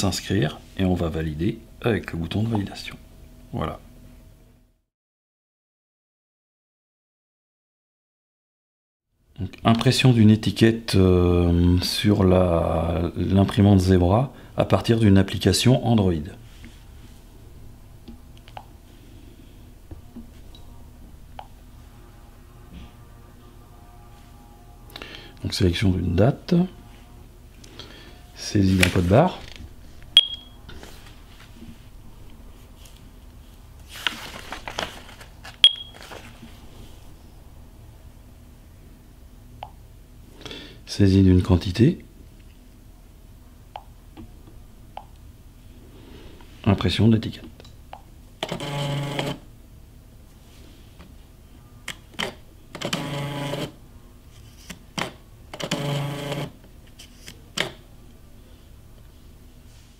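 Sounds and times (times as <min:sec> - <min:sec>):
handheld scanner beeps: 0:30.2 - 0:30.6, 0:35.6 - 0:36.0
label printer motor whir: 0:48.4 - 0:49.4, 0:52.7 - 0:53.8, 0:55.5 - 0:56.6.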